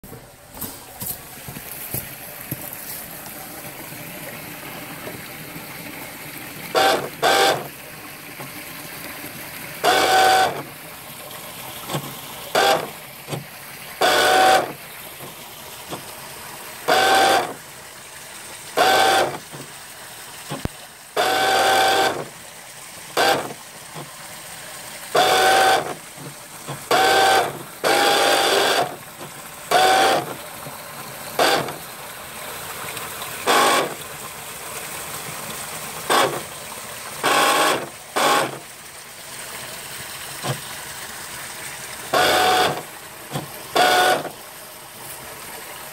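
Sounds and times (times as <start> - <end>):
electric motor whining: 9.8 - 10.6, 21.2 - 22.2, 25.2 - 26.0, 26.9 - 29.0, 29.7 - 30.3, 42.2 - 42.8, 43.8 - 44.3.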